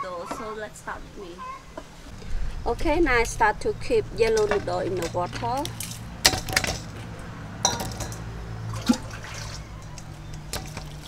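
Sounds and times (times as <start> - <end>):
water pouring into bowl: 8.7 - 9.7.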